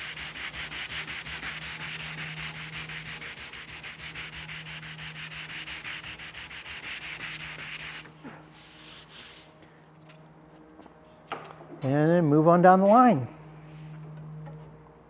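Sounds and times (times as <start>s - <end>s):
sandpaper rubbing wood: 0.0s - 9.5s.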